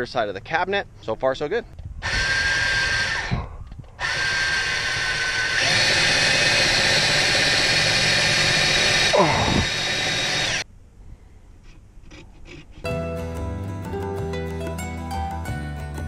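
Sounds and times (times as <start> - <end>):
cordless drill driving a screw: 2.0 - 10.6.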